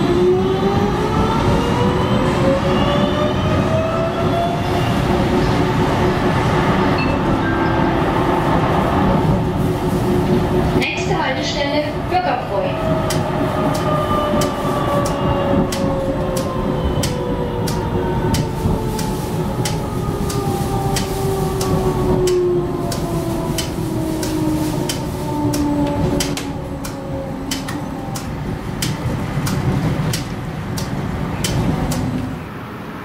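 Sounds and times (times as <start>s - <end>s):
tram drive whine: 0.0s - 33.0s
tram running rumble: 0.0s - 33.0s
wheels clicking on rails: 12.8s - 32.4s.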